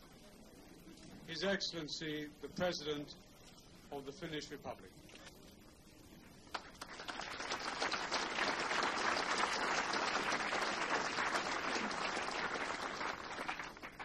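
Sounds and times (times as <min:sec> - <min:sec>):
crowd applauding: 0:06.5 - 0:14.0.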